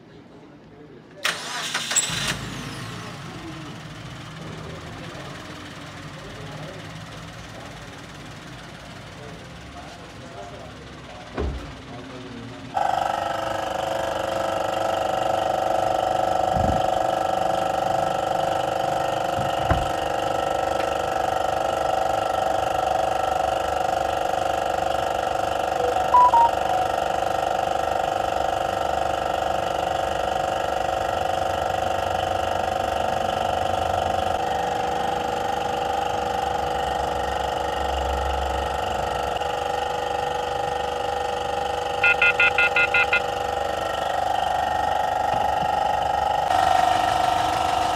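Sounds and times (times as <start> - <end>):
electronic touch tone beeps: 25.8 - 26.7, 42.0 - 43.2.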